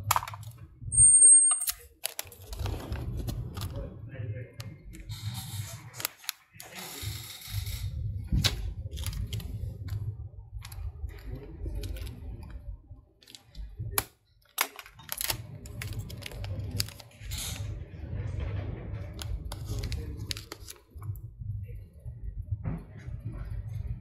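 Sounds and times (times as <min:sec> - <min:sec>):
steady low rumble: 0:00.0 - 0:01.0, 0:02.2 - 0:24.0.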